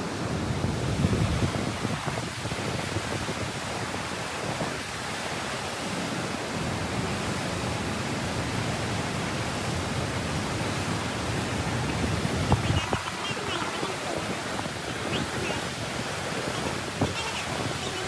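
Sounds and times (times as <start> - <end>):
water gushing through lock gates: 9.3 - 18.0.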